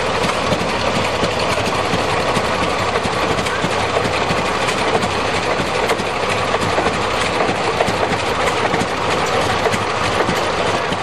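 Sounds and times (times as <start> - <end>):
tractor engines chugging: 0.0 - 11.0.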